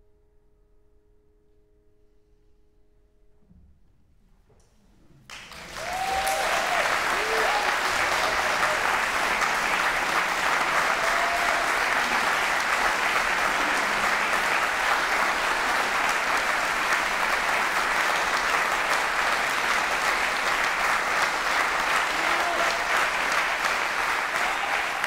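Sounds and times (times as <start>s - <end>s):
audience applauding: 5.3s - 25.0s.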